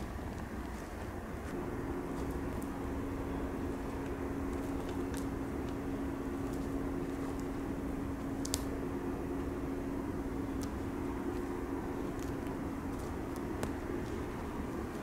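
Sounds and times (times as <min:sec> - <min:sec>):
footsteps on forest floor: 0:00.0 - 0:02.8, 0:10.6 - 0:15.0
low mechanical drone: 0:00.0 - 0:15.0
twigs snapping: 0:03.7 - 0:07.6, 0:08.2 - 0:08.9, 0:10.4 - 0:15.0.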